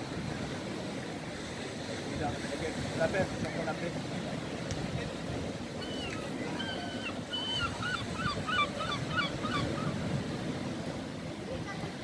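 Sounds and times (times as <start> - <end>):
waves breaking against seawall: 0.0 - 12.0
gull calling: 5.8 - 10.0.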